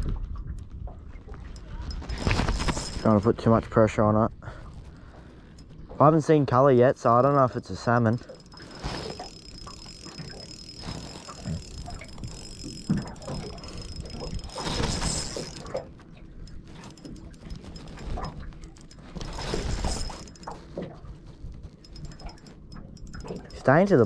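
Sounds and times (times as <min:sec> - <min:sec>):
fishing reel clicking and rubbing: 0:01.6 - 0:03.2, 0:07.2 - 0:24.0.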